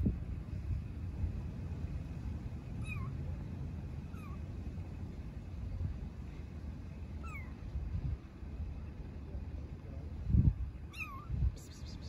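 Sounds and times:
kitten mewing: 10.9 - 12.0.

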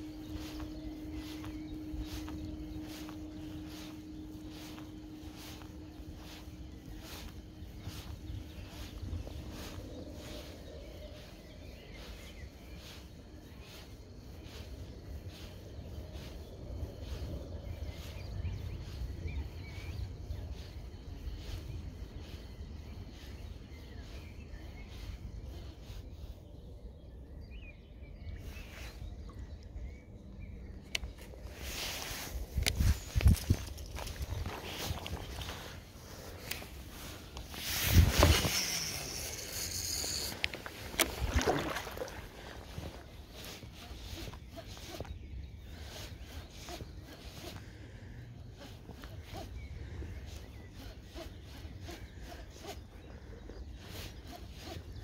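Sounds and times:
steady low rumble: 0.0 - 48.9
birds chirping: 0.0 - 55.0
high hiss: 34.6 - 43.0
fishing reel ticking: 37.3 - 42.1.

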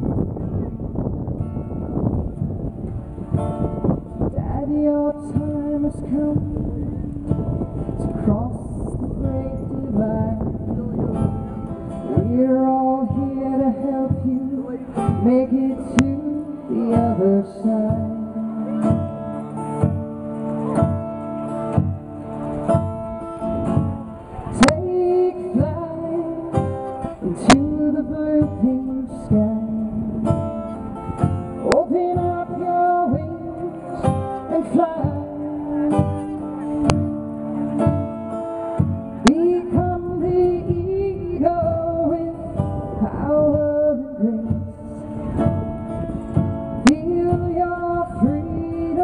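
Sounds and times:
acoustic guitar strumming: 0.0 - 49.0
woman singing: 4.3 - 18.9, 24.6 - 30.5, 31.6 - 36.5, 39.2 - 44.9, 46.8 - 49.0.

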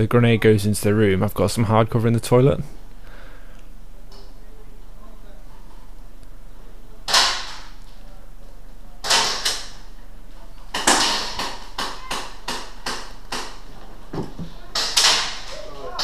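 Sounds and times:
airsoft gun shots: 7.1 - 7.8, 9.0 - 9.8, 10.8 - 13.6.

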